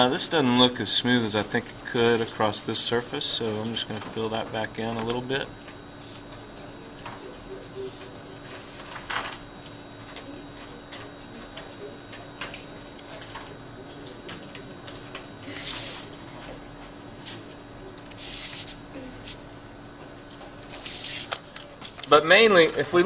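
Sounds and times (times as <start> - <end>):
paper shifting: 7.9 - 19.4, 20.7 - 22.2
marker scratching on paper: 9.6 - 13.5, 14.1 - 19.4, 20.7 - 22.0.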